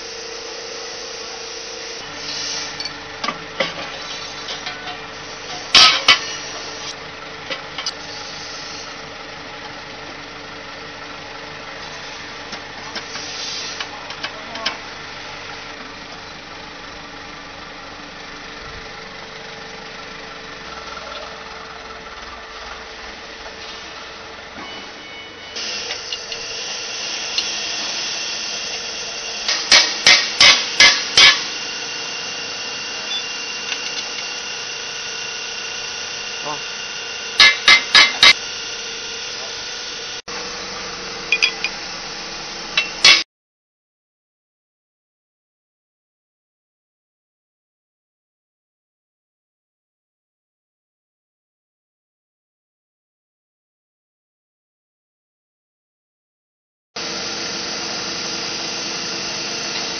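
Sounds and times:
steady mechanical hum: 0.0 - 43.2, 57.0 - 59.9.

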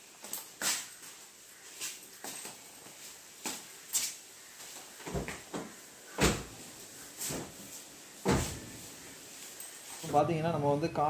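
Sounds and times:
car door thud: 8.2 - 8.7.

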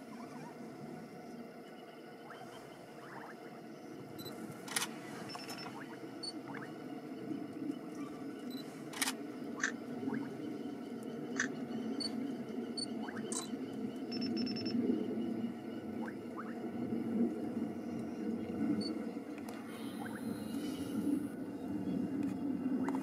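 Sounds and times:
steady low hum: 0.0 - 23.0
camera shutter clicking: 9.0 - 9.2.

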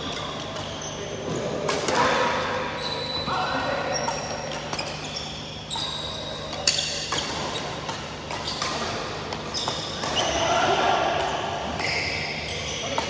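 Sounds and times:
shoes squeaking on court: 0.0 - 2.1, 2.7 - 10.5, 11.7 - 13.0
racket hitting shuttlecock: 1.6 - 2.3, 6.5 - 11.8.

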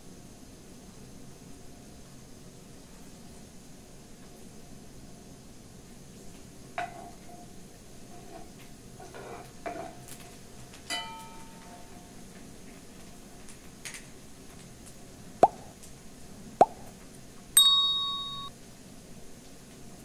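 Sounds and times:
bell-like ding: 17.6 - 18.5.

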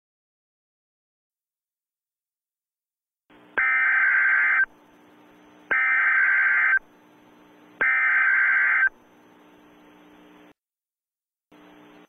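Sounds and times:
shrill digital data tones: 3.6 - 4.7, 5.7 - 6.8, 7.8 - 9.0.

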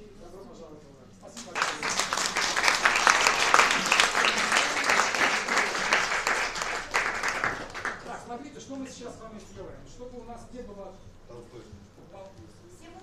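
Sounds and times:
hands clapping close by: 1.4 - 8.2
small audience applauding: 1.4 - 8.4.

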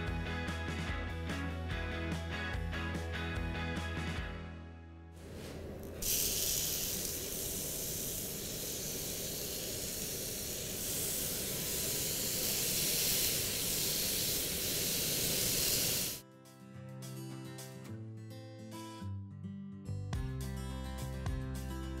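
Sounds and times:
fruit sizzling on grill pan: 6.0 - 16.2.

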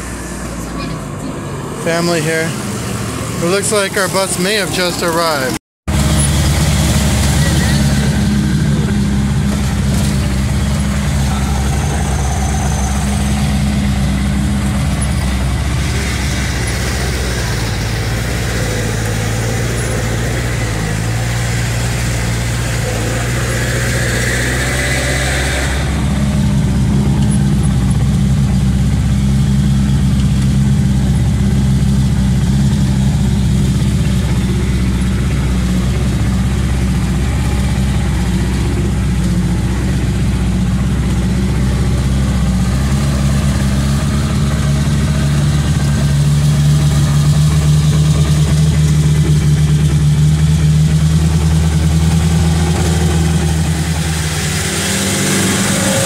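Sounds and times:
bus engine running: 0.0 - 56.0.

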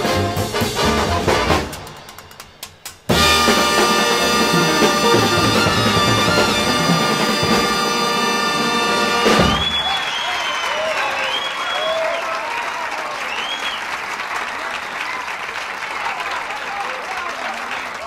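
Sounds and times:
big band jazz with brass: 0.0 - 2.1, 3.0 - 9.9
audience applauding and cheering: 2.0 - 18.0
whistles from audience: 9.3 - 14.0.

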